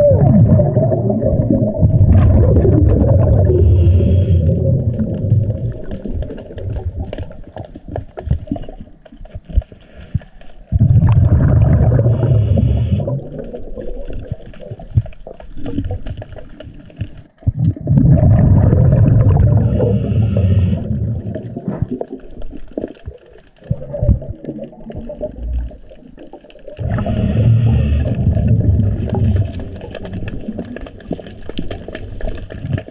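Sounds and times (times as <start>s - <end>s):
diver exhaling bubbles: 0.0s - 7.1s, 10.7s - 14.9s, 17.4s - 22.5s, 26.7s - 30.9s
quiet bubbling: 0.0s - 32.9s.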